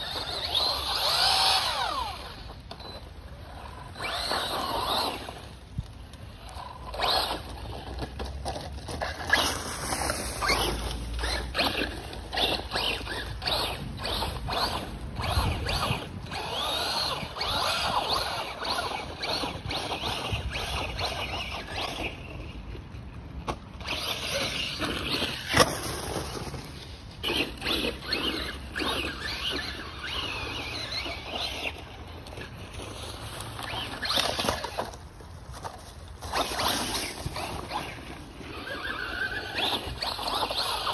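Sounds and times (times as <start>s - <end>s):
electric motor whining: 0.0s - 8.1s, 9.0s - 22.3s, 27.2s - 34.9s
tyres scrabbling over dirt: 0.0s - 40.9s.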